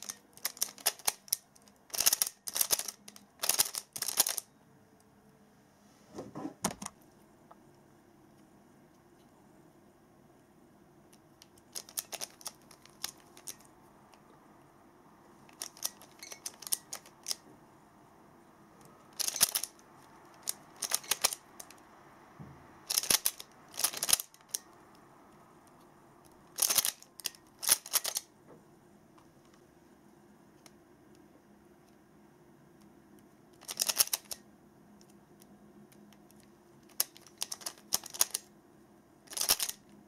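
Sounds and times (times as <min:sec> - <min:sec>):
puzzle layers clicking: 0:00.0 - 0:04.5, 0:11.4 - 0:13.7, 0:15.5 - 0:17.4, 0:19.1 - 0:19.8, 0:20.4 - 0:21.8, 0:22.9 - 0:24.6, 0:26.6 - 0:28.2, 0:33.6 - 0:34.4, 0:36.8 - 0:38.5, 0:39.3 - 0:39.8.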